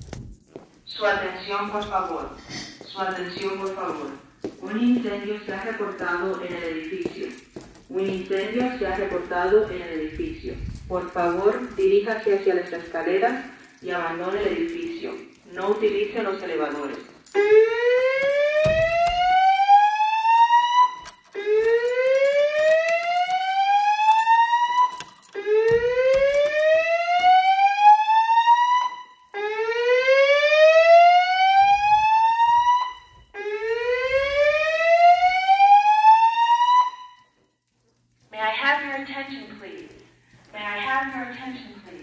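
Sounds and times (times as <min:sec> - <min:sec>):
spoken evacuation messages: 0:00.9 - 0:18.0, 0:38.3 - 0:42.0
fire alarm whoop tone: 0:17.4 - 0:37.4.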